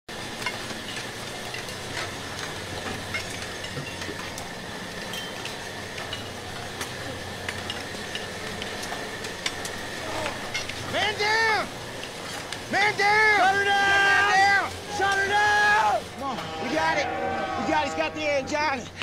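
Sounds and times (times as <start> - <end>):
continuous crackle: 0.1 - 19.0
machinery low hum: 0.1 - 19.0
faint high whine: 0.8 - 19.0.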